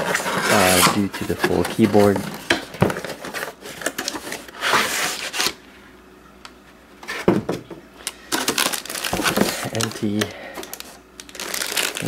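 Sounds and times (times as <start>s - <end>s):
cardboard scraping against cardboard: 0.0s - 2.4s, 3.0s - 5.5s
packaging rustles: 0.0s - 5.6s, 8.1s - 12.0s.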